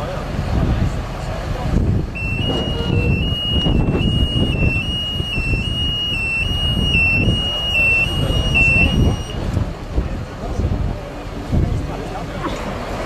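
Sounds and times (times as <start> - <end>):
two-tone electronic warning tone: 2.1 - 9.4.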